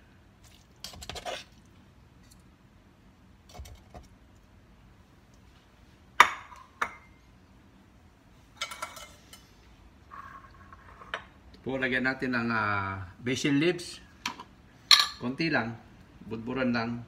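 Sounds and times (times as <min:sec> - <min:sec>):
tongs clinking on pot and plate: 0:08.6 - 0:09.5.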